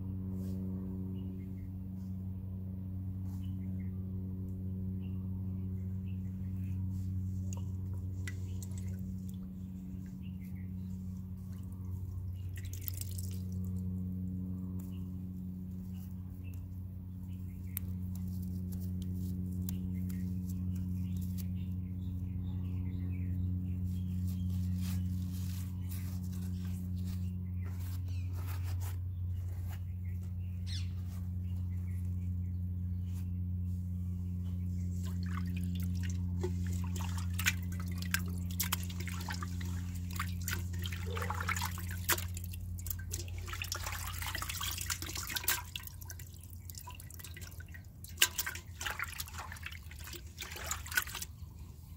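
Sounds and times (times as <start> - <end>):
steady low hum: 0.0 - 51.9
liquid dripping into a steel pot: 40.2 - 51.2.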